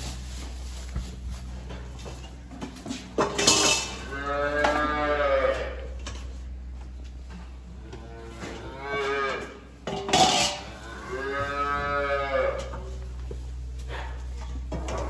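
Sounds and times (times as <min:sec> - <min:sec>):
calves mooing: 0:03.4 - 0:06.1, 0:07.7 - 0:13.0, 0:13.8 - 0:15.0.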